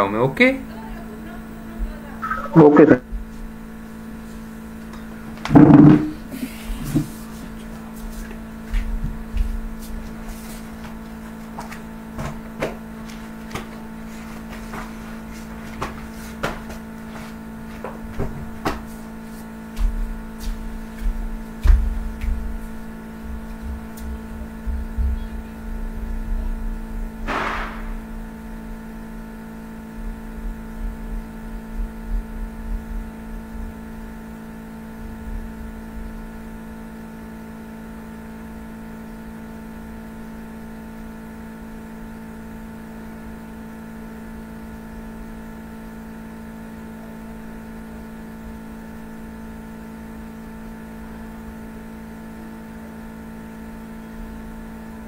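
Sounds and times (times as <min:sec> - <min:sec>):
steady electrical hum: 0:00.0 - 0:55.0
brief higher noise: 0:27.3 - 0:28.0.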